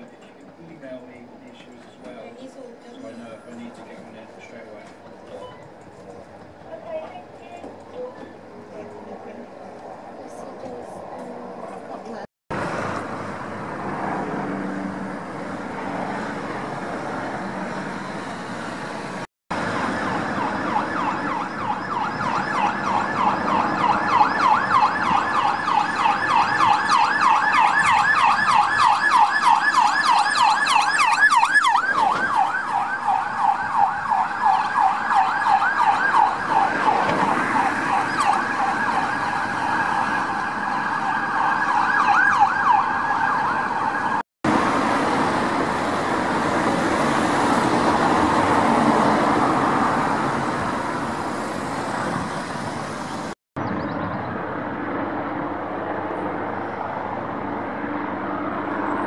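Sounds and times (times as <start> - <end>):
road traffic noise: 0.0 - 59.0
siren yelping: 19.6 - 44.2.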